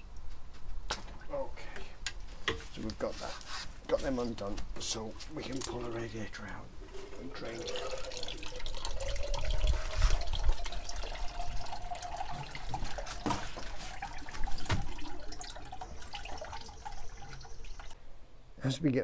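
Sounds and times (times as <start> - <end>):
faint rising tone: 5.8 - 12.2.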